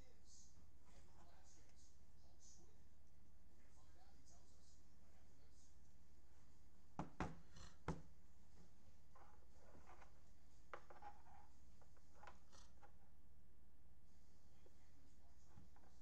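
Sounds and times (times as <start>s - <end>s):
low steady hum: 0.0s - 16.0s
objects handled on a desk: 7.0s - 13.1s.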